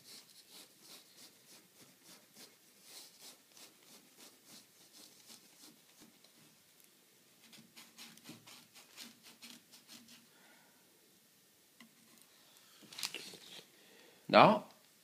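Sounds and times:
paintbrush dabbing on canvas: 0.0 - 6.8, 7.4 - 10.3.

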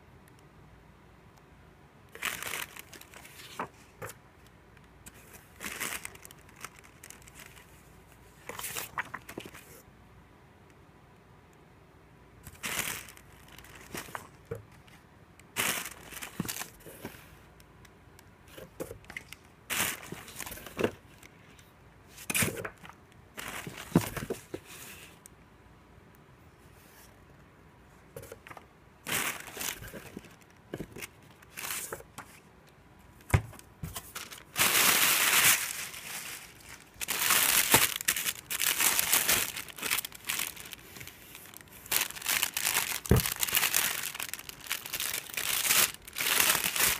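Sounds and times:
paper and plastic bags rustling: 2.2 - 4.2, 5.2 - 9.8, 12.5 - 14.5, 15.6 - 17.4, 18.6 - 21.2, 22.3 - 24.7, 28.2 - 32.4, 33.8 - 46.9.

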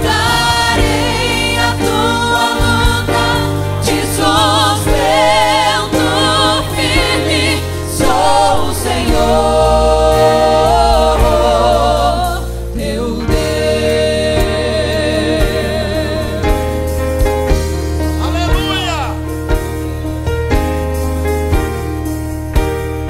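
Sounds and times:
woman singing worship song: 0.0 - 17.0
electronic keyboard accompaniment: 0.0 - 23.0.

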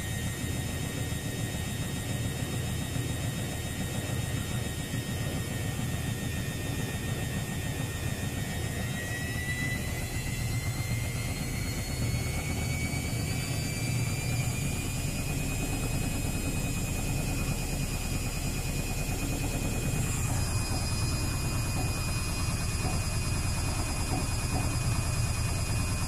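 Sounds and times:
motor whine: 0.0 - 26.0
washing machine drum rumble: 14.6 - 26.0.

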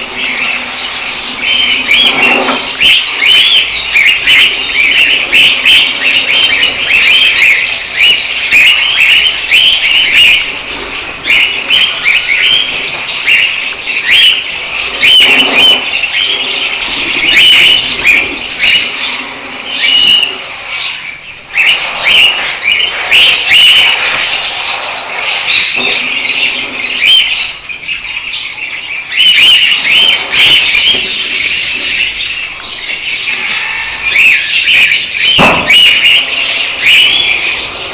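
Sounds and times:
budgerigars chattering: 0.0 - 37.9.

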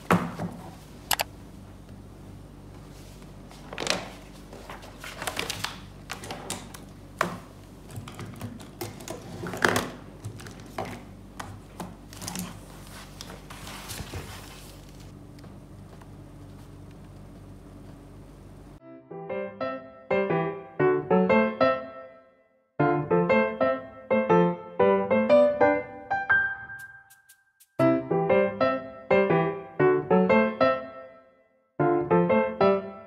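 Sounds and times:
paper rustling: 3.5 - 6.7, 12.0 - 15.2.

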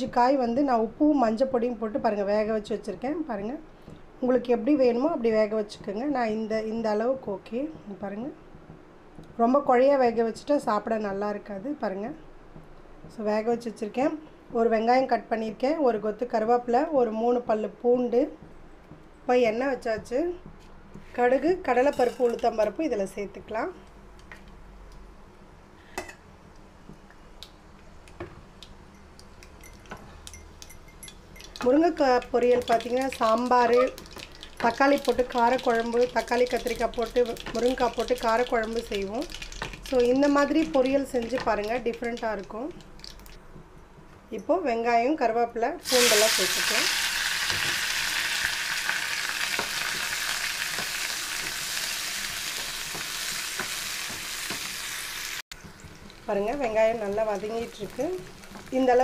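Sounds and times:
seeds frying in hot oil: 27.3 - 43.4, 45.8 - 59.0
wooden spatula taps and scrapes: 31.4 - 42.9
sharp pops and crackles: 31.4 - 43.4.

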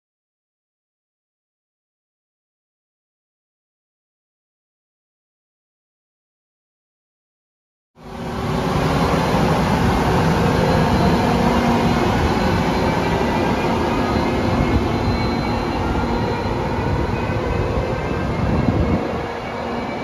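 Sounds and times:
train wheels on rail: 8.0 - 20.0.

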